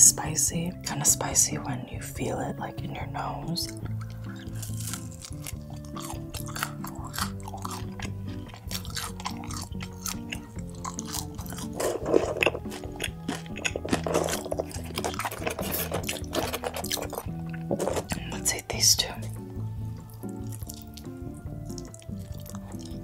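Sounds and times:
background music: 0.0s - 23.0s
person chewing food: 3.6s - 18.4s, 19.3s - 23.0s
crunchy bites: 3.7s - 18.3s, 20.1s - 23.0s.

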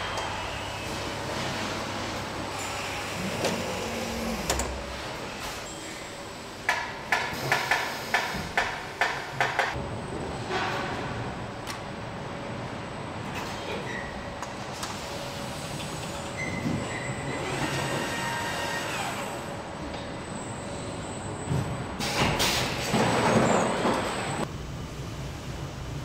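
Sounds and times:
hum of robots and conveyors: 0.0s - 26.0s.

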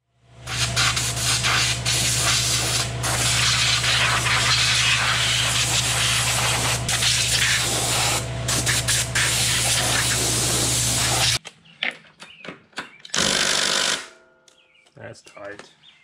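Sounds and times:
heavy rain hissing: 0.6s - 11.4s.

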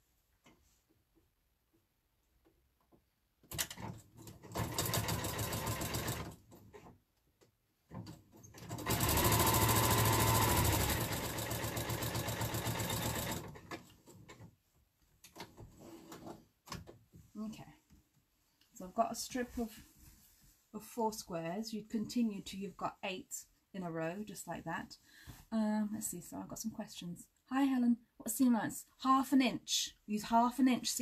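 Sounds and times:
sewing machine stitching: 3.5s - 6.9s, 7.9s - 14.4s.

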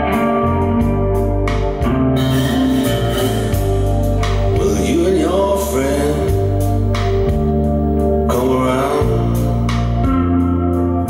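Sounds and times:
heavy bass and organ chords: 0.0s - 11.0s
person singing: 2.2s - 7.3s, 8.2s - 10.0s.

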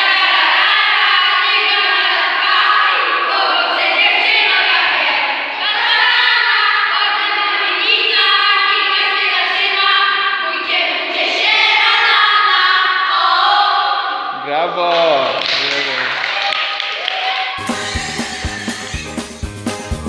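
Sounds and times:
children singing in unison: 0.0s - 14.3s, 17.6s - 19.3s.

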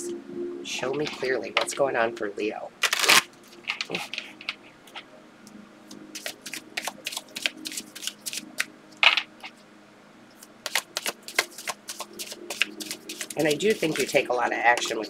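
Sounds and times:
faint hum: 0.0s - 15.0s
cards being shuffled: 2.8s - 5.0s, 6.1s - 9.5s, 10.4s - 14.2s.

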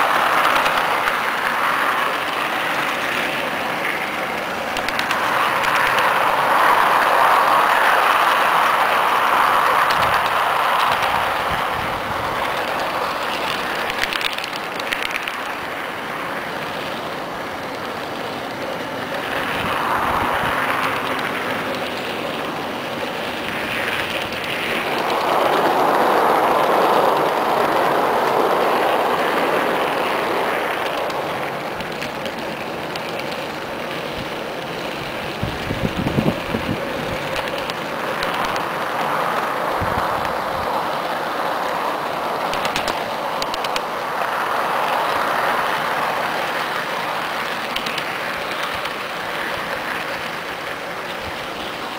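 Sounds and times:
toy train wheels whirring on rails: 0.0s - 51.9s
clicks: 4.7s - 6.1s, 42.5s - 43.9s.

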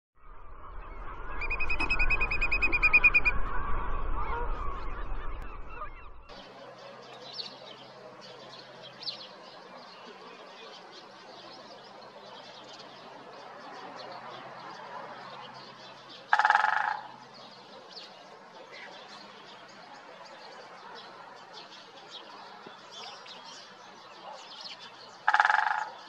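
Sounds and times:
faint bird calls: 14.9s - 26.0s.

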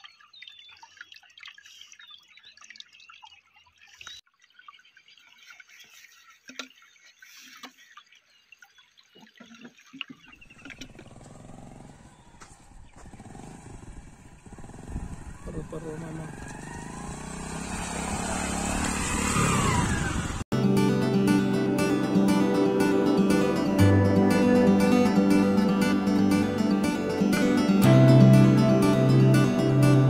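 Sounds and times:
stream trickling over stones: 0.0s - 15.1s
small motorcycle engine: 10.5s - 20.5s.

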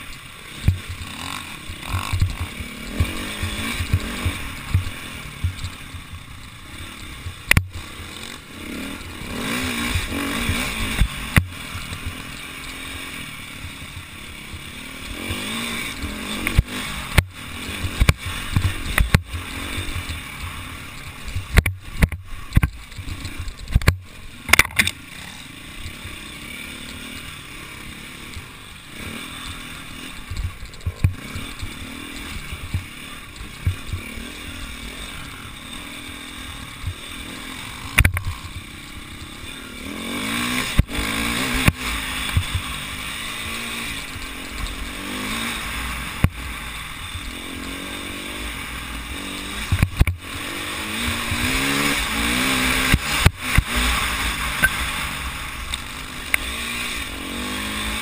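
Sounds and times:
motorcycle engine revving: 0.0s - 58.0s
knocks and thumps from bumps: 30.3s - 31.6s.

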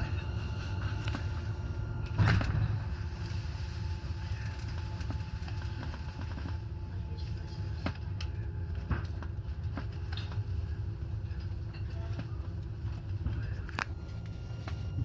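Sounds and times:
tram low rumble and hum: 0.0s - 15.0s.

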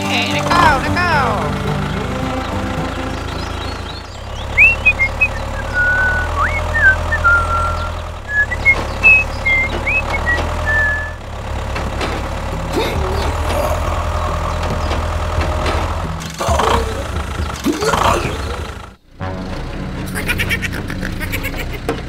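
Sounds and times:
tractor engine idling: 0.0s - 22.0s
high chirping whistles: 3.7s - 11.2s.

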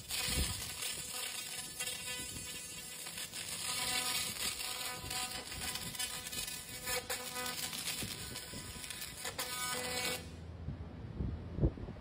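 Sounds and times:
laser crackling hiss: 0.0s - 10.3s.

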